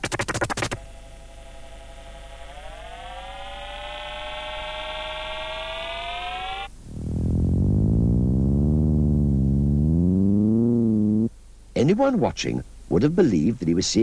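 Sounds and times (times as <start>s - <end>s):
electronic tone gliding upward: 0.4s - 11.3s
low wavering electronic rumble: 0.8s - 11.3s.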